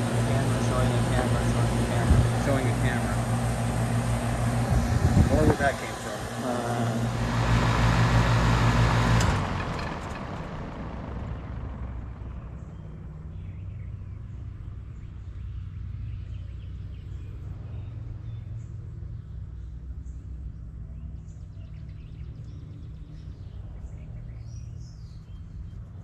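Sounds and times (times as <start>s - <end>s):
air conditioner shutoff click: 0.0s - 10.6s
air conditioner humming: 0.0s - 12.5s.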